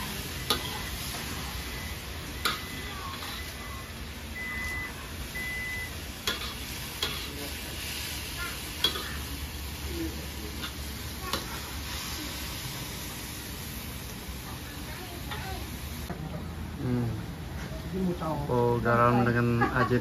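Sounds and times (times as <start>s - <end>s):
greens sizzling in a wok: 0.0s - 16.1s.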